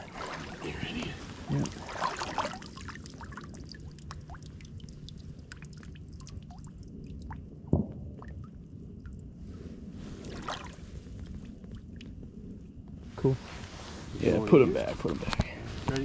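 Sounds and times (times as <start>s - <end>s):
water dripping and trickling: 0.0s - 9.4s, 10.3s - 12.3s
steady low rumble: 0.0s - 16.0s.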